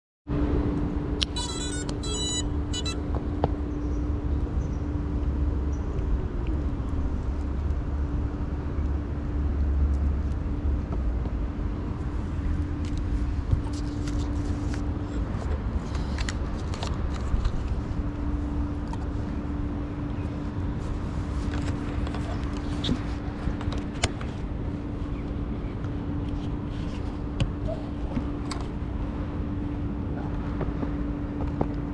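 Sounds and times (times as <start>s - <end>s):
steady hum: 0.3s - 31.9s
street traffic rumble: 0.3s - 31.9s
stepped electronic beeps: 1.3s - 3.0s.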